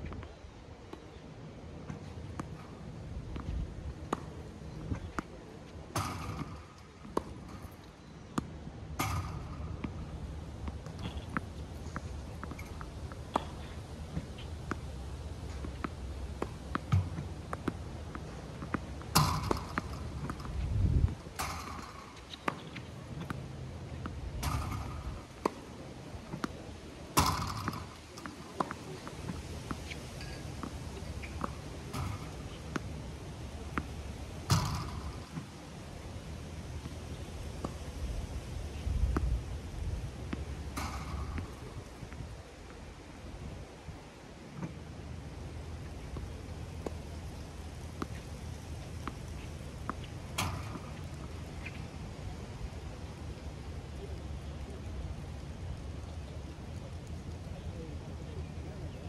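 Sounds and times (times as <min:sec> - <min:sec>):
tennis balls popping off racket: 0:01.8 - 0:35.8, 0:38.7 - 0:43.0, 0:45.5 - 0:53.0.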